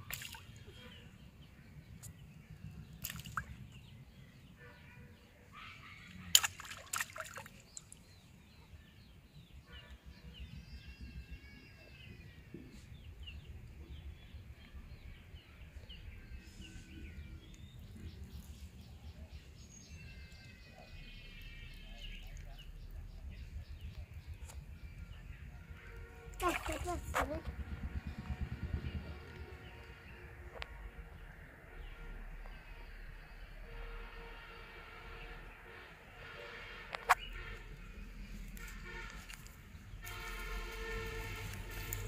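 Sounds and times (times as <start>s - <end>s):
bait splashing onto water: 6.4s - 8.0s, 26.4s - 26.9s
low steady rumble: 20.9s - 34.2s.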